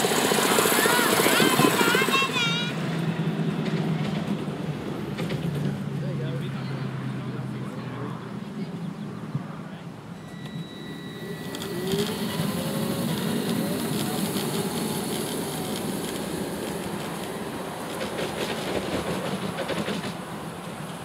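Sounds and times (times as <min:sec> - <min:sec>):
train wheels rumbling on track: 0:00.0 - 0:09.5, 0:10.1 - 0:21.0
scattered clicks: 0:11.4 - 0:17.4.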